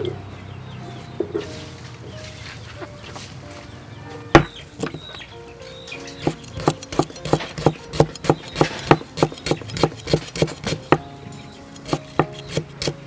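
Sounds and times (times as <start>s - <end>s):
cleaver knocking on wooden block: 4.4s - 5.2s, 6.2s - 11.0s.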